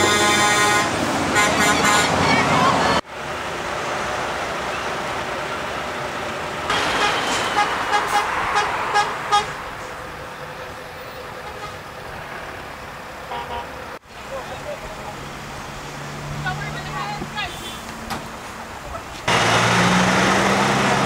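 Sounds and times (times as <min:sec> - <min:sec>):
truck horn toots: 0:00.0 - 0:02.6, 0:06.7 - 0:09.6, 0:11.4 - 0:11.9, 0:13.3 - 0:13.8
trucks passing: 0:00.0 - 0:21.0.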